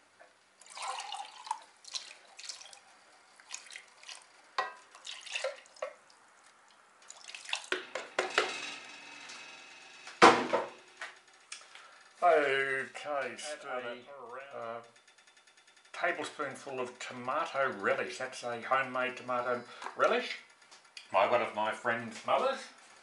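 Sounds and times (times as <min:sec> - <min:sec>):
small splashes: 0:00.6 - 0:07.8
water pouring and dripping: 0:00.6 - 0:07.9
sharp knock: 0:07.8 - 0:09.4, 0:10.0 - 0:10.8.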